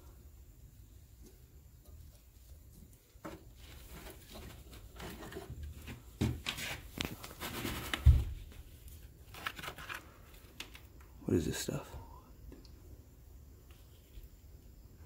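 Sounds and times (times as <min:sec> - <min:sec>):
rustling and scraping of debris: 0:01.2 - 0:11.1.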